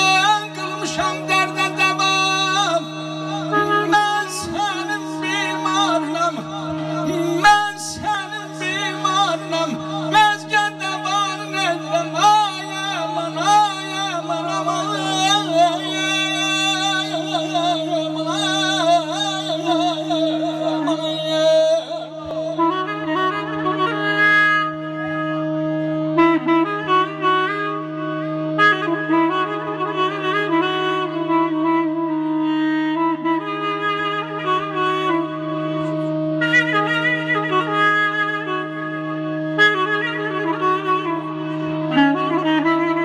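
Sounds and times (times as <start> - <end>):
sustained instrumental drone: 0.0 - 23.8
man singing into a microphone: 0.0 - 43.0.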